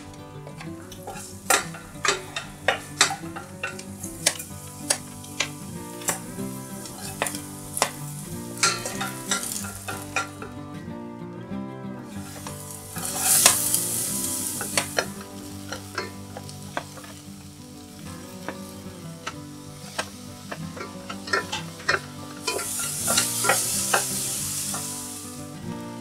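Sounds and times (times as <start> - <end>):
vegetables sizzling in oil: 0.0 - 10.6, 12.1 - 26.0
spatula scraping a pot: 0.9 - 10.5, 12.2 - 17.2, 19.3 - 25.4.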